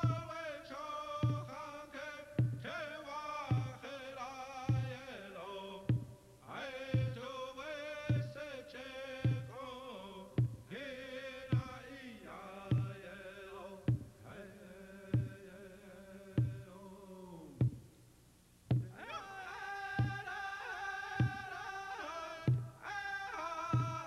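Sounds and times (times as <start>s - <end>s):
steady drum beat: 0.0s - 0.4s, 1.2s - 1.6s, 2.4s - 2.7s, 3.5s - 3.8s, 4.7s - 5.0s, 5.9s - 6.2s, 7.0s - 7.2s, 8.0s - 8.5s, 9.2s - 9.6s, 10.4s - 10.8s, 11.6s - 11.9s, 12.7s - 13.0s, 13.9s - 14.3s, 15.2s - 15.5s, 16.4s - 16.7s, 17.6s - 18.0s, 18.7s - 19.1s, 20.0s - 20.4s, 21.2s - 21.6s, 22.5s - 22.8s, 23.7s - 24.0s
chanted singing: 0.0s - 17.5s, 18.9s - 24.0s.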